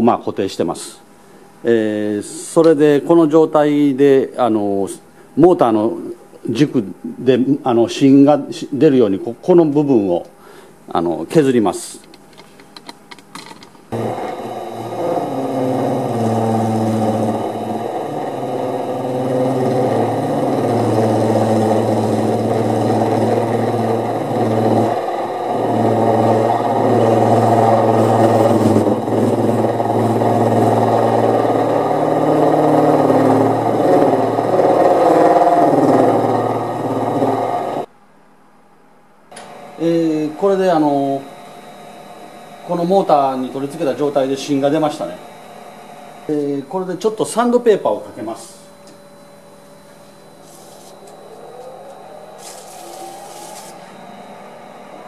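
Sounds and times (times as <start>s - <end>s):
electric motor humming: 13.9s - 37.9s, 39.3s - 55.0s
lathe tool cutting brass: 13.9s - 37.9s, 39.4s - 48.7s, 50.0s - 55.0s.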